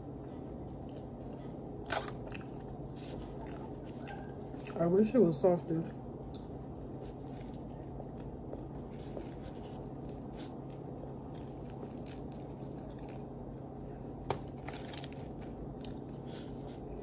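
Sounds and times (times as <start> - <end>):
chewing and crunching: 0.0 - 17.0
bread crust tearing: 9.3 - 13.3, 14.3 - 15.6.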